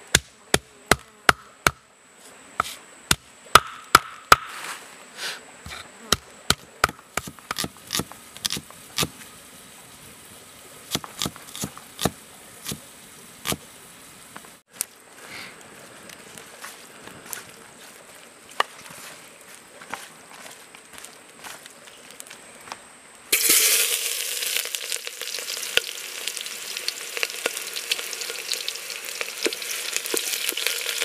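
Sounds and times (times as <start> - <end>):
knife chopping on wooden board: 2.6 - 4.5, 5.7 - 9.1, 10.9 - 12.8
stone pestle pounding: 3.1 - 4.5.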